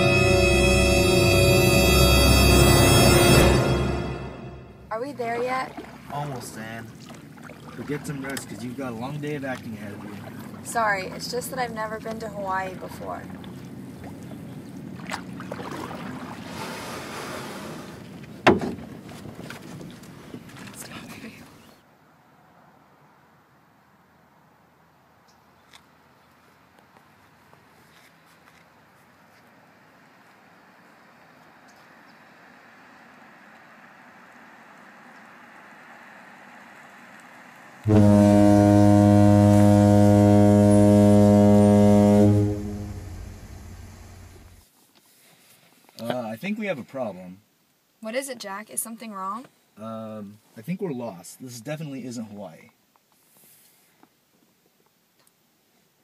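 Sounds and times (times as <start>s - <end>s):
ship's horn blast: 0.0s - 5.2s, 37.8s - 44.6s
ocean waves washing: 0.0s - 18.3s, 33.1s - 44.6s.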